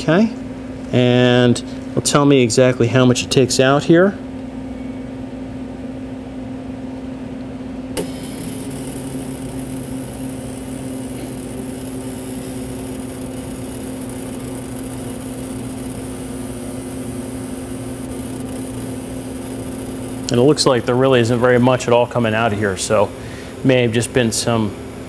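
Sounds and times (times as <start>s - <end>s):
machine running steadily: 7.6s - 25.0s
low hum: 7.9s - 23.7s.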